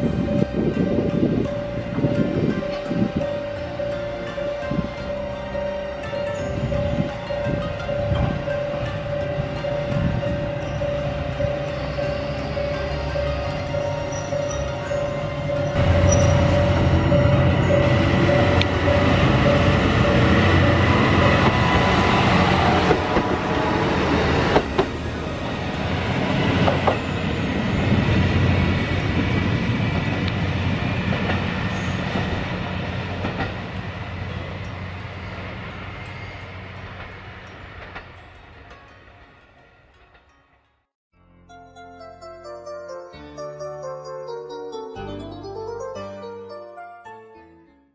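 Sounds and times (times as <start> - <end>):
railcar diesel engine running: 0.0 - 40.6
wheels clacking over rail joints: 8.0 - 39.3.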